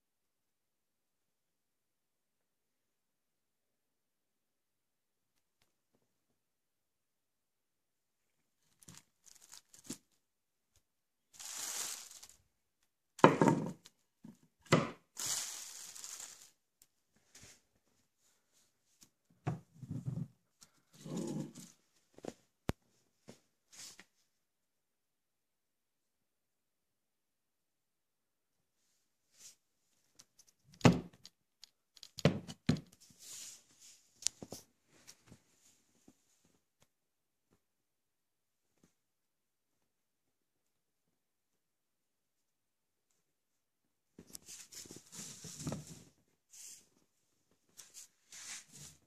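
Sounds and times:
packaging rustling: 0:08.6 - 0:10.2, 0:11.3 - 0:12.4, 0:15.2 - 0:16.6.

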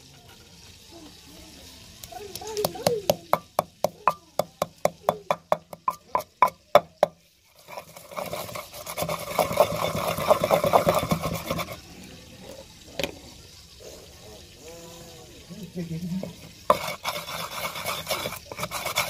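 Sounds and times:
pestle grinding rattle: 0:02.6 - 0:11.8, 0:16.2 - 0:19.0
pestle pounding in mortar: 0:02.6 - 0:11.8, 0:16.7 - 0:19.0.

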